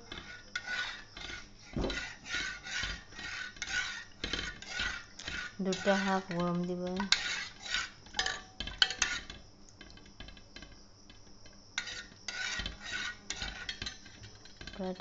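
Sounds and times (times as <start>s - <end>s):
spoon scraping metal pot: 0.0s - 10.7s, 11.8s - 15.0s.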